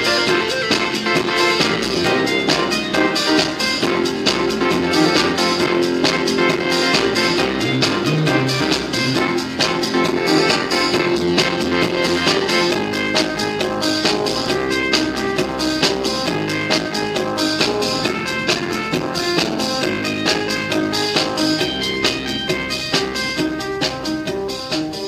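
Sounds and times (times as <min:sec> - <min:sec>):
music with steady drum beat: 0:00.0 - 0:25.0.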